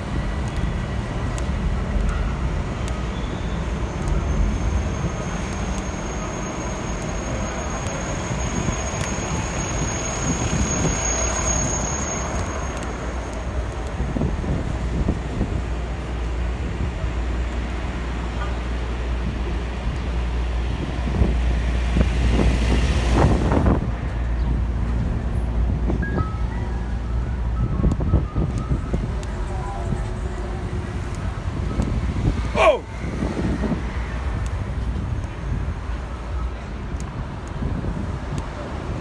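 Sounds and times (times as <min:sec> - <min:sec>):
cars and trucks passing: 0:00.0 - 0:39.0
thin high whistle: 0:04.8 - 0:12.9.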